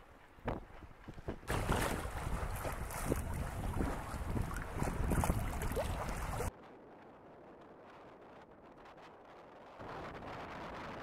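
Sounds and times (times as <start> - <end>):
water noise: 0.0 - 6.6
wind on microphone: 0.4 - 11.0.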